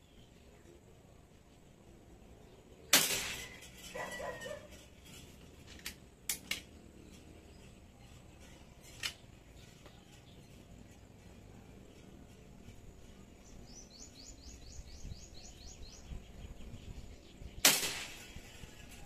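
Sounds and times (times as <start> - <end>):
rifle shot: 2.9 - 3.6, 17.6 - 18.4
gun handling clicks: 5.7 - 6.7.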